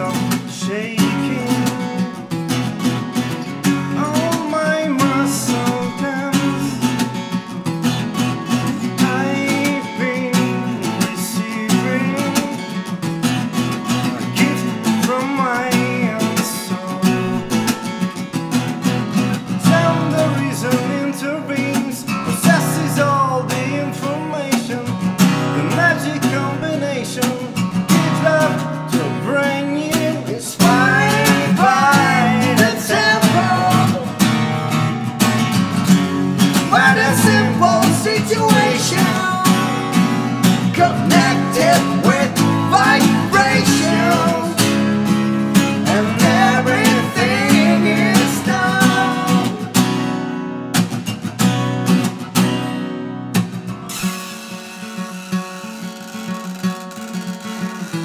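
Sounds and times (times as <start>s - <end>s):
man singing: 0.0s - 2.4s, 3.6s - 7.3s, 8.6s - 12.9s, 14.0s - 17.8s, 19.4s - 35.0s, 36.4s - 49.9s
acoustic guitars strummed and picked: 0.0s - 58.0s.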